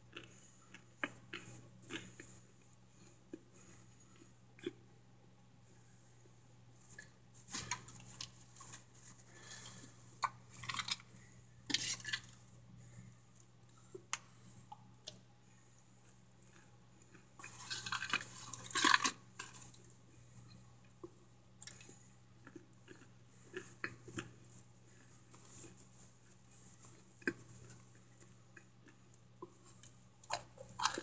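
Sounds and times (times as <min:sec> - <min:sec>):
brittle chunks crackling in foil pan: 0:10.5 - 0:11.1, 0:11.7 - 0:12.4, 0:17.5 - 0:19.8.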